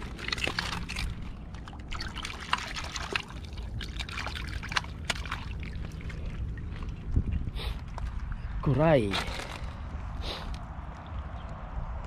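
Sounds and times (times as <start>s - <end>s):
seawater trickling and splashing: 0.0s - 8.5s.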